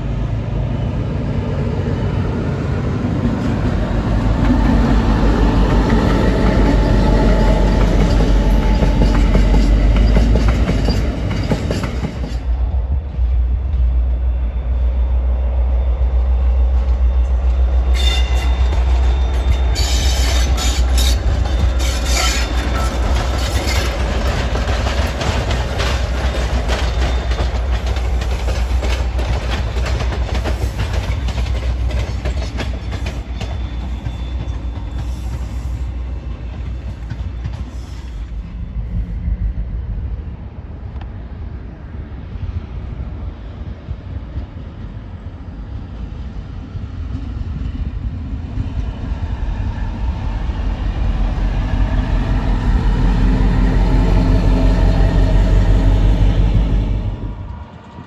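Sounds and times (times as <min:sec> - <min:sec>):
locomotive engine rumble: 0:00.0 - 0:58.0
wheels clicking over rail joints: 0:18.5 - 0:35.7.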